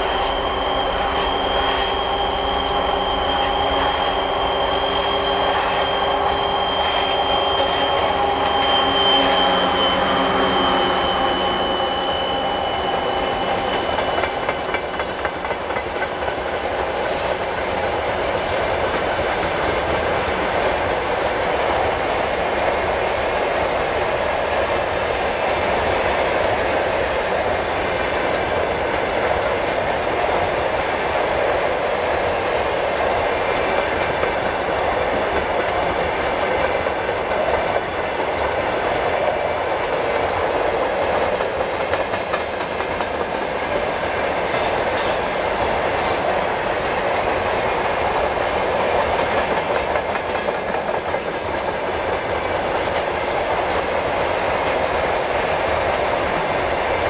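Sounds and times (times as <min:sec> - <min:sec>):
diesel locomotive humming and whining: 0:00.0 - 0:57.0
train wheels clattering over rail joints: 0:12.7 - 0:55.1.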